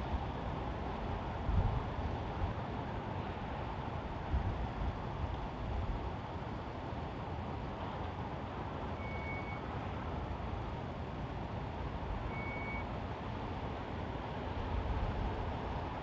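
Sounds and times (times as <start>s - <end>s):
road traffic hum: 0.0s - 16.0s
short high beeps: 9.0s - 9.6s, 12.3s - 12.9s.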